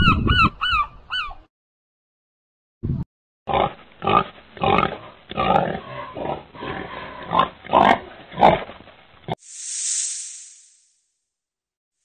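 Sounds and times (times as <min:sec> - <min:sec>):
pigs grunting: 0:03.5 - 0:08.7.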